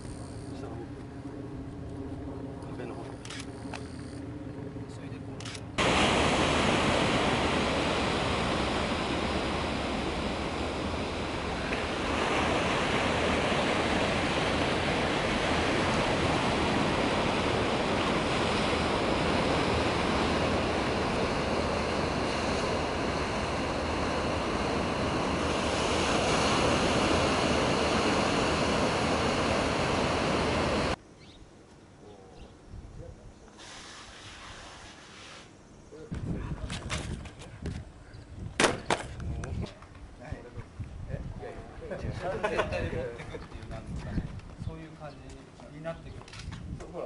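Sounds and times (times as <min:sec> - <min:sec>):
ocean waves breaking: 0:05.8 - 0:31.0.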